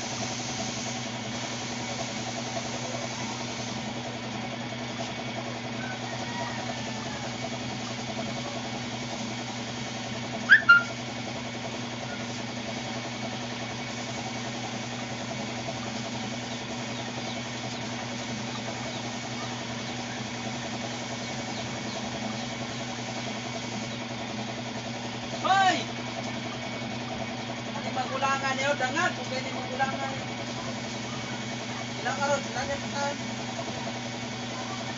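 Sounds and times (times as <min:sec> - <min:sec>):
air compressor running: 0:00.0 - 0:34.9.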